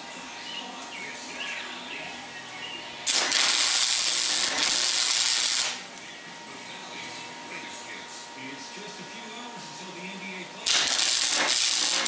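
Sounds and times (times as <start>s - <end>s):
welder arc hissing and crackling: 3.0s - 6.0s, 10.6s - 12.0s.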